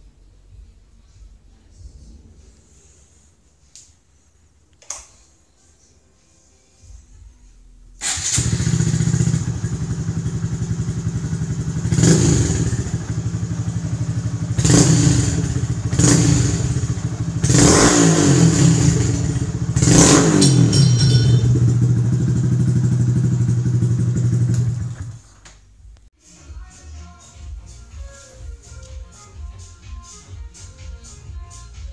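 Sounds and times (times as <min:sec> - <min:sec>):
motorcycle engine idling and revving: 0:08.0 - 0:25.4.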